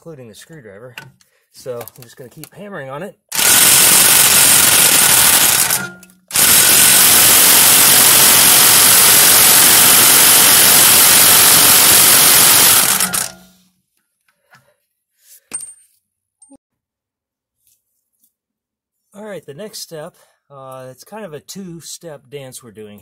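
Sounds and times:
impact wrench hammering nut: 0:03.3 - 0:13.6.

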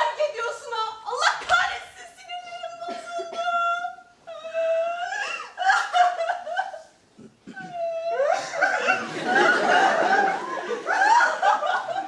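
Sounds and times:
woman wailing sobs: 0:03.3 - 0:06.9, 0:07.5 - 0:09.0.

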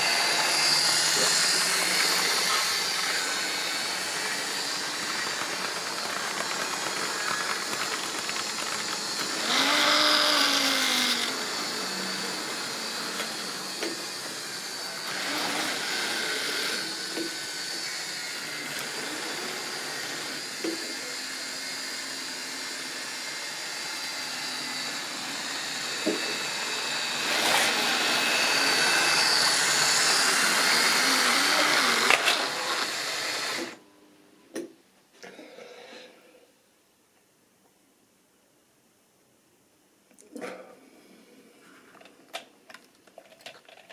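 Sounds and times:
model train motor whirring: 0:00.0 - 0:11.7.

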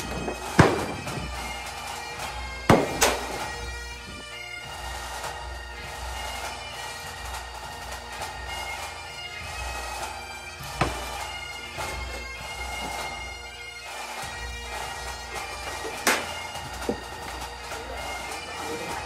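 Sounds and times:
sharp cracks: 0:00.0 - 0:04.2, 0:14.1 - 0:17.7
bagpipe music with drones: 0:00.0 - 0:19.0.

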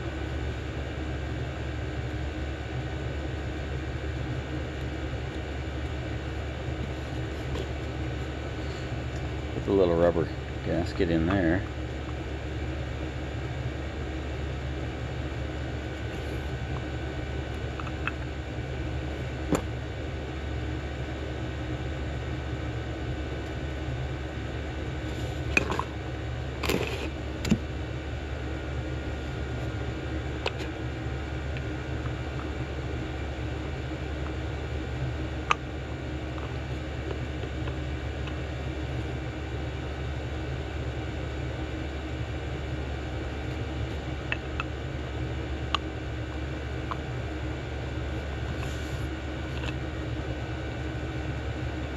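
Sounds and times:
low hum: 0:00.0 - 0:51.9.

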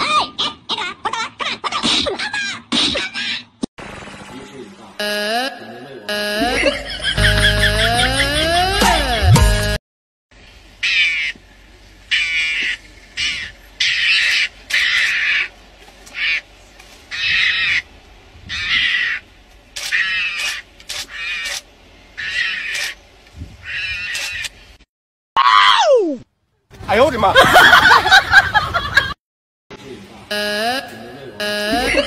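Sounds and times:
mongoose raspy calls: 0:10.8 - 0:11.4, 0:12.1 - 0:16.5, 0:17.1 - 0:17.9, 0:18.5 - 0:21.6, 0:22.2 - 0:23.0, 0:23.6 - 0:24.6.

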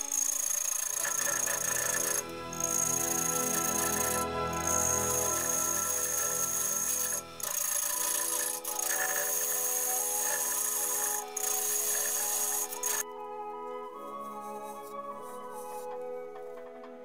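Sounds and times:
gouge scraping wood on lathe: 0:00.0 - 0:13.0
background music: 0:00.0 - 0:17.0.

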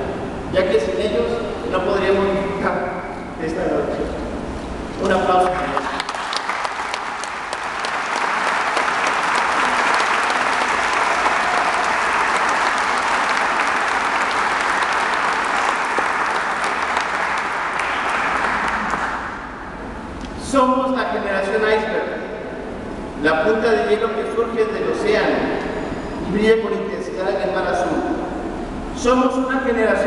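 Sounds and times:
audience applauding: 0:05.6 - 0:19.6.

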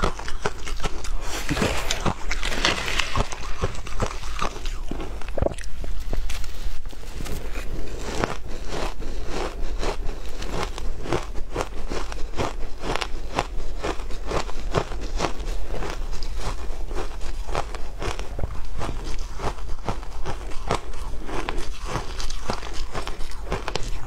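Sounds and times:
shaved ice crunching when chewed: 0:00.0 - 0:24.0.

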